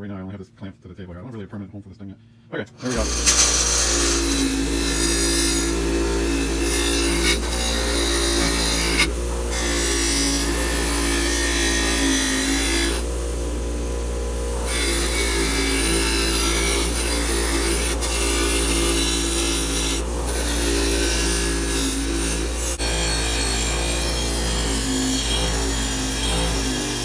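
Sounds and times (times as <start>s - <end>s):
wire wheel scraping paint off metal: 2.8s - 4.7s
grinder motor humming: 2.8s - 27.0s.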